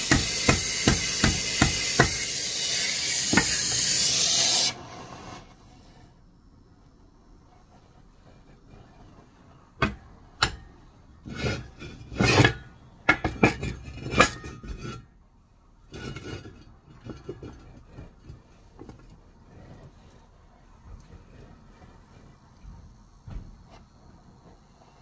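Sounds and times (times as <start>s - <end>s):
steel plate clanking against vise: 11.4s - 15.0s.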